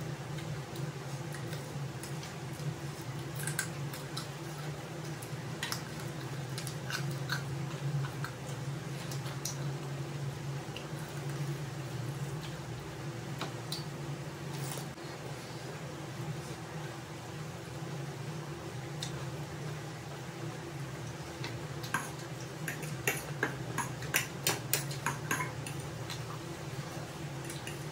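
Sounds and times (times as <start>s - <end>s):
steady low hum: 0.0s - 27.9s
wet chewing and smacking: 0.4s - 9.7s.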